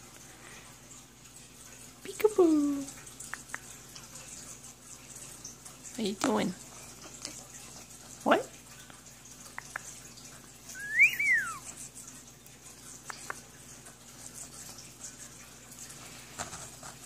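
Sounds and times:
rising and falling whistle: 0:10.8 - 0:11.6.

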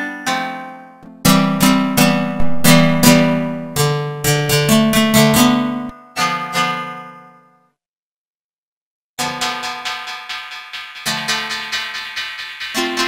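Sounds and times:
plucked string notes with delay: 0:01.0 - 0:05.9.

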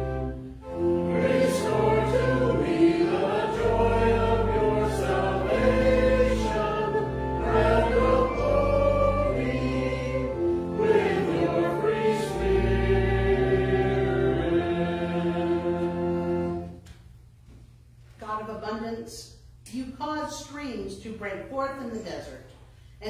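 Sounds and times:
group singing a hymn: 0:00.0 - 0:16.8
sustained low accompaniment: 0:00.0 - 0:16.8.

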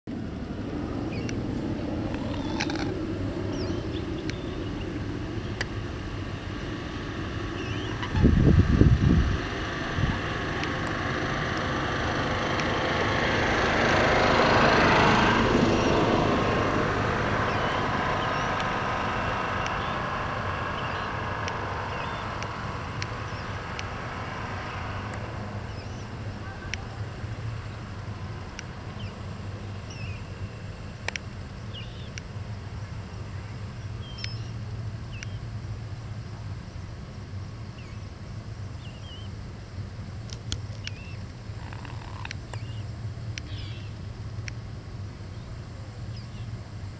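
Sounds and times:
passing vehicle motor: 0:00.1 - 0:36.6
steady low hum: 0:00.1 - 0:46.9
small birds chirping: 0:01.0 - 0:01.4, 0:02.1 - 0:05.8, 0:07.5 - 0:08.3, 0:15.6 - 0:24.0, 0:24.6 - 0:36.2, 0:38.7 - 0:39.4, 0:40.5 - 0:44.6, 0:45.3 - 0:46.6.

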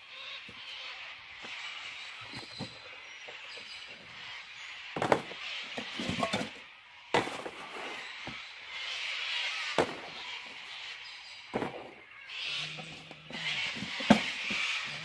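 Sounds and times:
camping gear knocks and clunks: 0:05.0 - 0:06.6.

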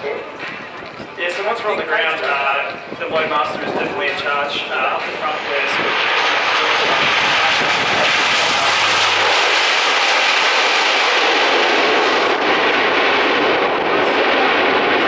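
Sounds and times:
turboprop aircraft engines running: 0:00.0 - 0:15.0.

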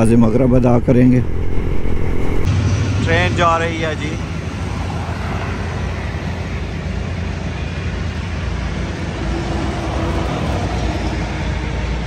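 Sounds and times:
wind noise: 0:00.0 - 0:02.5
train running by: 0:00.0 - 0:12.0.

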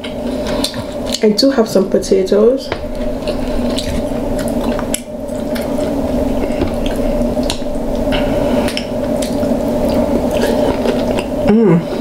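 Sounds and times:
steady low hum: 0:00.0 - 0:12.0
wet chewing and lip smacking: 0:02.9 - 0:06.0.

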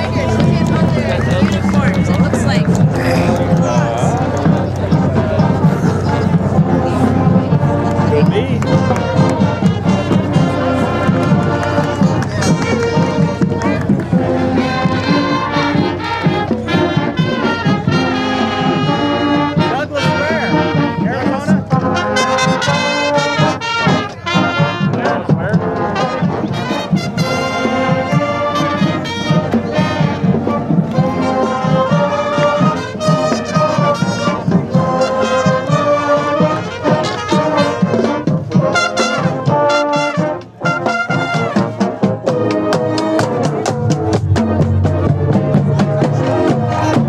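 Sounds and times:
marching band playing: 0:00.0 - 0:47.0.

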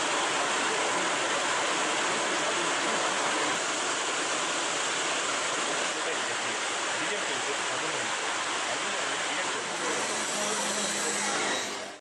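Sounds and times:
heavy rain on road and foliage: 0:00.0 - 0:10.7.

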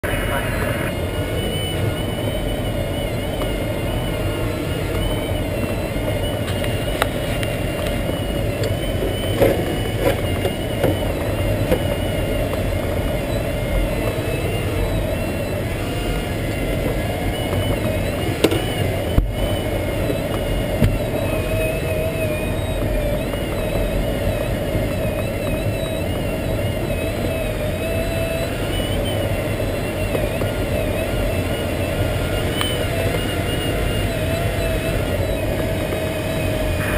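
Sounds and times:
rush of air in cockpit: 0:00.0 - 0:21.5
thin wavering high tone: 0:00.0 - 0:36.9.

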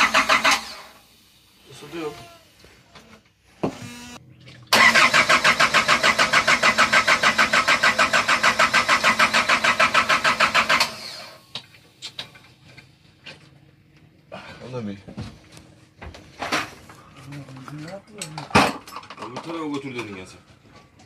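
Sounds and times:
diesel engine cranking: 0:00.0 - 0:01.1, 0:03.9 - 0:12.7.

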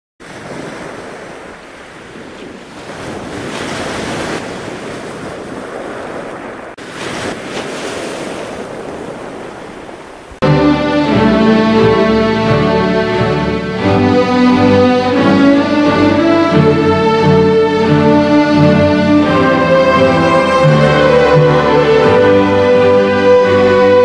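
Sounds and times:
music with sustained notes: 0:10.4 - 0:24.0.

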